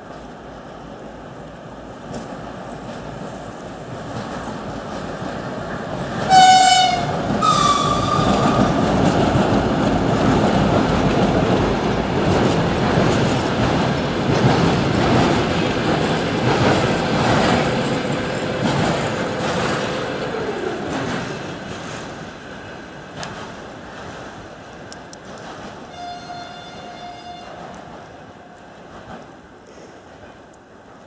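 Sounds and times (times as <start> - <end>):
train wheels clattering over rails: 2.0 - 31.0
train horn: 6.3 - 8.9, 25.9 - 27.8.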